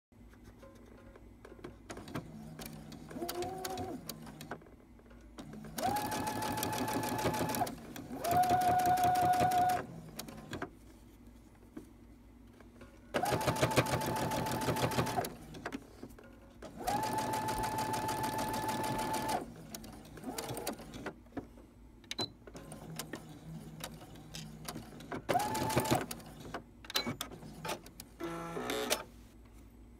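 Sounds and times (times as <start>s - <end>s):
sewing machine motor whine: 5.8s - 9.9s.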